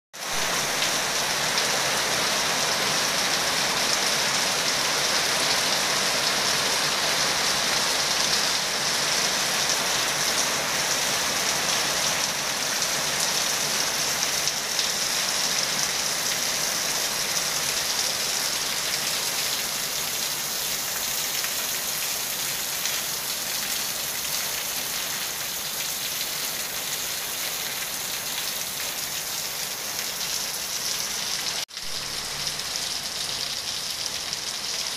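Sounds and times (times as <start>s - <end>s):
rain splashing on pool and paving: 0.2s - 34.9s.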